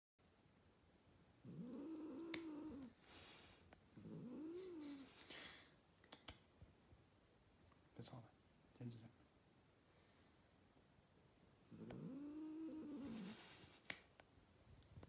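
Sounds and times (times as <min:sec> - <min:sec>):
nail clipper clicks: 0:02.2 - 0:02.5.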